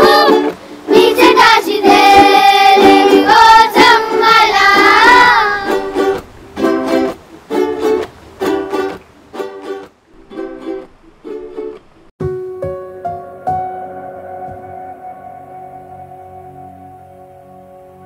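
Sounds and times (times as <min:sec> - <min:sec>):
person singing: 0:00.0 - 0:06.1.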